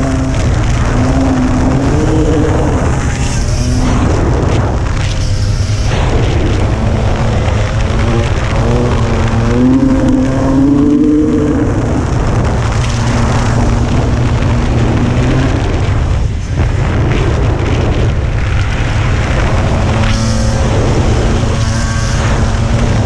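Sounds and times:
dirt bike engine revving: 0.0 - 23.0
wind rushing on microphone: 0.0 - 23.0.

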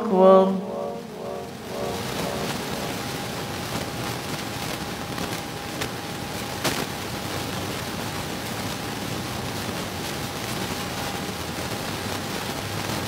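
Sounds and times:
faint high tone: 0.0 - 3.4
steady hiss: 0.6 - 13.0.

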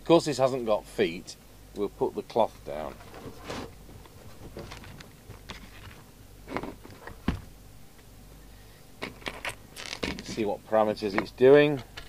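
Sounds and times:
radio handling rustles and knocks: 2.8 - 8.1, 9.0 - 12.0
soft thump on bench: 7.2 - 7.5.

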